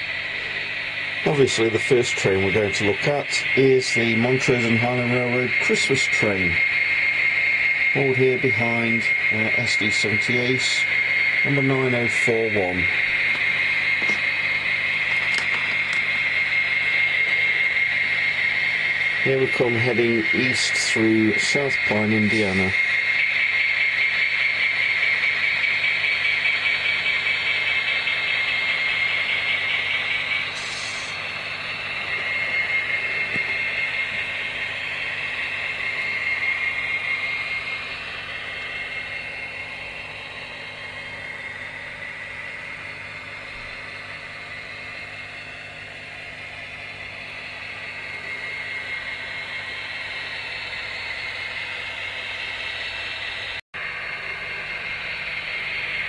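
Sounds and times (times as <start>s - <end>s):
model train rolling rattle: 9.0s - 40.4s.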